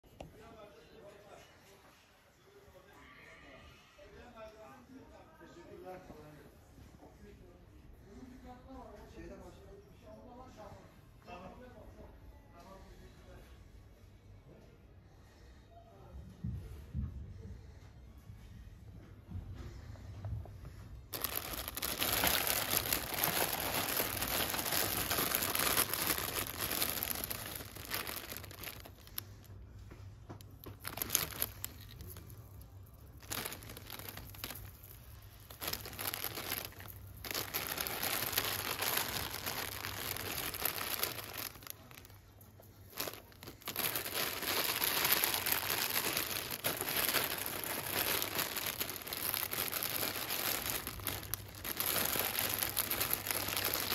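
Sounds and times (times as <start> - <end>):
plastic sleeves crinkling: 21.1 - 29.5, 30.4 - 53.9.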